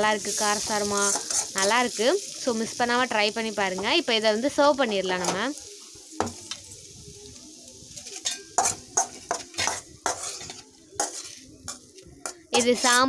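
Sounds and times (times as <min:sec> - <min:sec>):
faint sizzle: 0:00.0 - 0:13.0
metal pots and utensils clinking: 0:00.5 - 0:02.0, 0:08.0 - 0:13.0.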